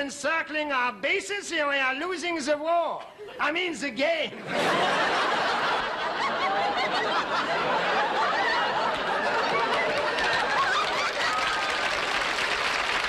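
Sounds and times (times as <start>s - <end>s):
audience laughing: 4.3s - 12.1s.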